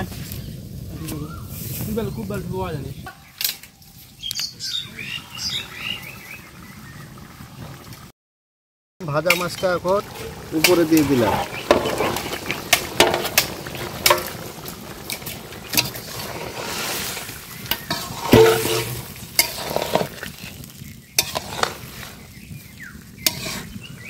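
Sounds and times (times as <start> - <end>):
faint hiss of simmering curry: 9.0 - 24.0
metal spatula scraping a pot: 9.3 - 22.3, 23.2 - 23.9
metal pot ringing: 17.7 - 19.8.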